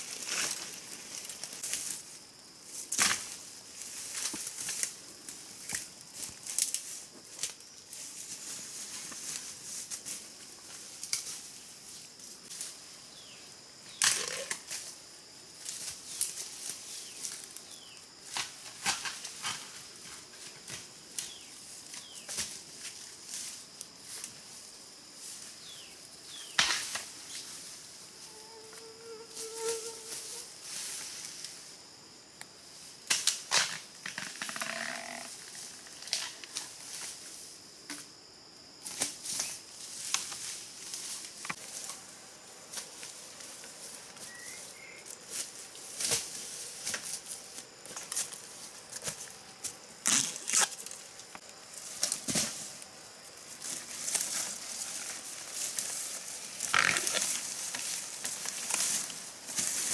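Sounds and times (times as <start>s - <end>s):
vegetation snapping underfoot: 47.9s - 52.6s.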